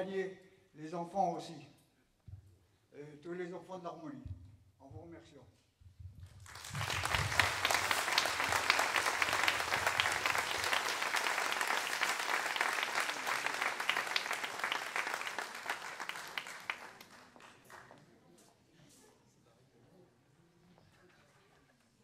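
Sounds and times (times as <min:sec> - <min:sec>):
audience applauding: 0:06.4 - 0:18.0.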